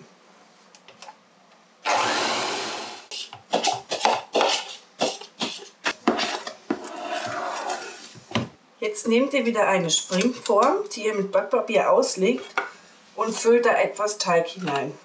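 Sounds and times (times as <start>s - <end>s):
electric hand mixer running: 1.8s - 3.1s
metal spoon scraping plastic bowl: 3.1s - 8.2s, 9.9s - 10.8s.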